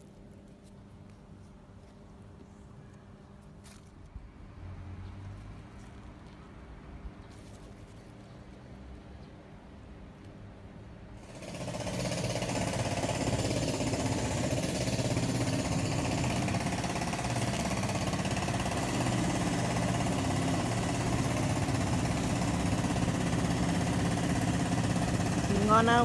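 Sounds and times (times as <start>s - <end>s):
engine running with pulsing rumble: 11.2s - 26.0s.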